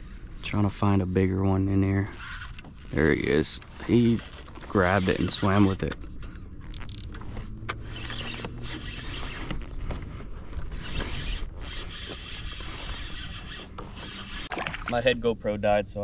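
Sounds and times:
fishing reel whirring: 0:02.2 - 0:03.0, 0:10.7 - 0:14.5.

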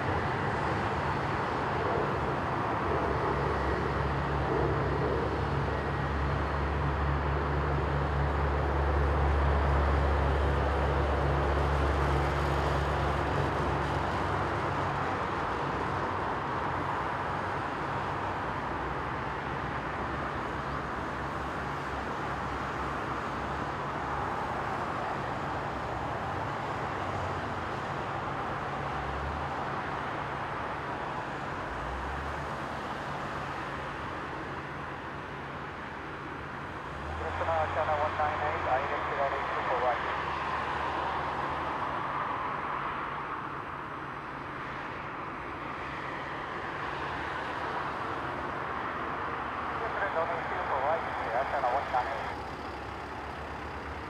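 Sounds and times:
distant jet aircraft rushing: 0:37.0 - 0:54.0.

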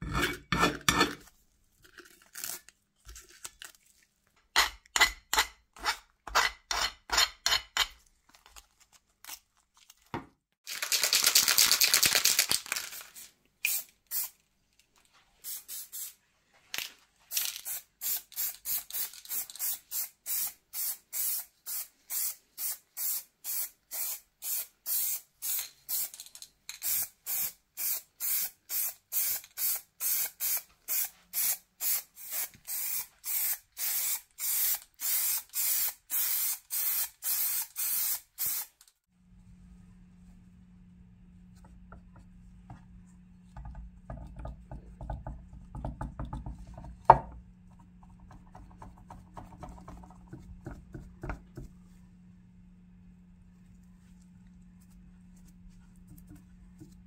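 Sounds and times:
aerosol spray can hissing: 0:15.4 - 0:16.2, 0:17.3 - 0:26.2, 0:26.8 - 0:38.7.

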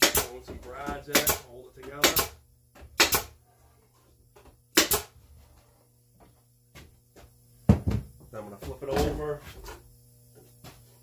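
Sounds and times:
nail gun firing: 0:00.0 - 0:00.4, 0:01.1 - 0:02.4, 0:03.0 - 0:03.3, 0:04.7 - 0:05.2.

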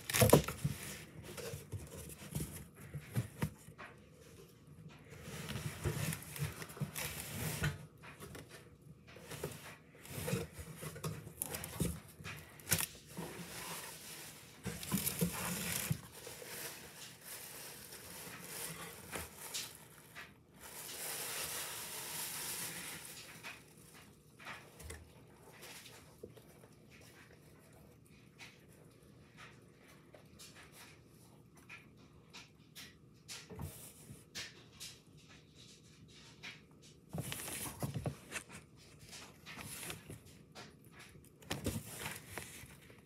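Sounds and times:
packaging rustling: 0:10.1 - 0:24.2
cardboard box being opened: 0:10.2 - 0:20.0.

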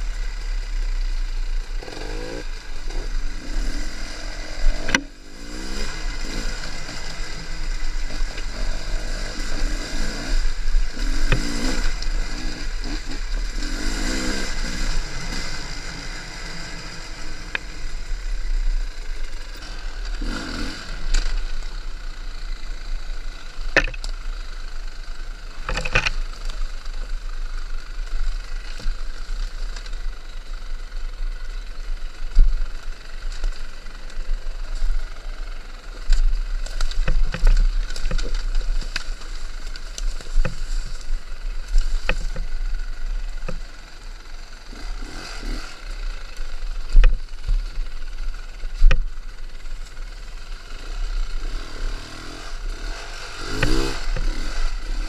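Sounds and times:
dirt bike engine revving: 0:01.6 - 0:21.8, 0:43.1 - 0:46.3, 0:50.0 - 0:55.0.

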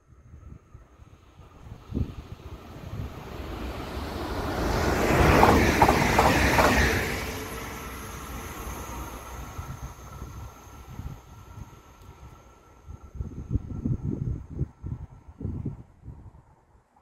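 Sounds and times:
train rumbling past: 0:00.2 - 0:15.4
train wheel clacks: 0:04.9 - 0:07.3.

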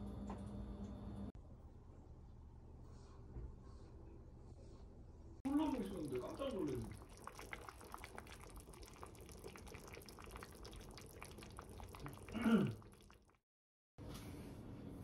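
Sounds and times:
pot simmering with bubbles popping: 0:05.5 - 0:13.4.

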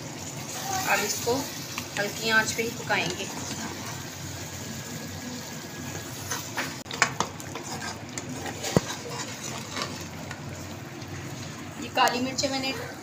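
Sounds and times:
gravy sizzling: 0:00.0 - 0:13.0
spoon scraping metal pan: 0:06.1 - 0:10.2.

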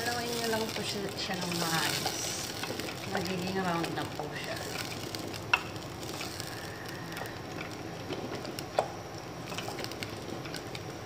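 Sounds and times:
wooden spoon scraping pot: 0:00.0 - 0:08.8.

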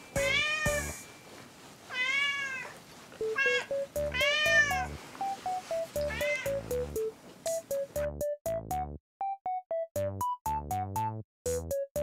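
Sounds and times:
cat meowing: 0:00.2 - 0:00.9, 0:01.9 - 0:05.0, 0:06.0 - 0:06.6.

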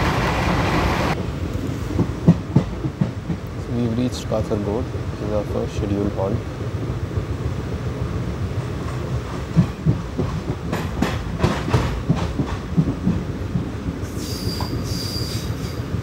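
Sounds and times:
train wheels clattering over rail joints: 0:01.9 - 0:03.5, 0:08.6 - 0:15.8
train wheels squealing: 0:14.0 - 0:15.9.

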